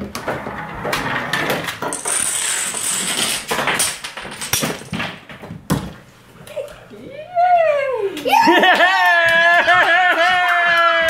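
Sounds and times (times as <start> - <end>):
dominoes and toy parts clattering: 0.6 - 5.3.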